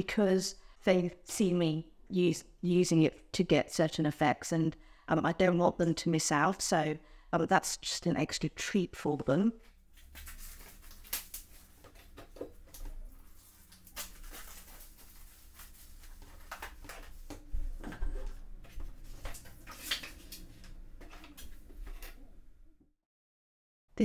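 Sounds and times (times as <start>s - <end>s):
plastic shrink-wrap crinkling: 9.9s - 17.4s
paper pages rustling: 9.9s - 22.2s.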